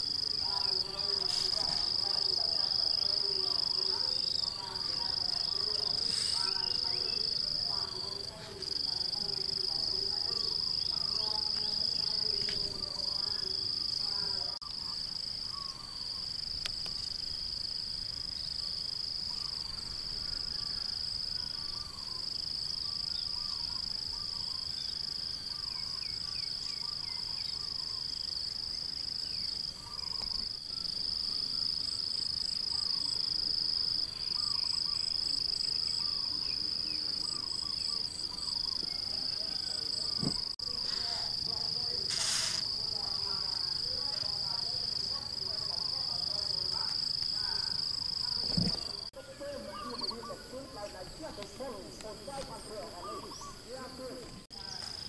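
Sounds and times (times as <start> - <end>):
insect high-pitched drone: 0.0 - 55.0
insect pulsing call: 0.0 - 55.0
faint bird chirps: 14.6 - 16.3, 18.3 - 31.7, 34.1 - 41.0.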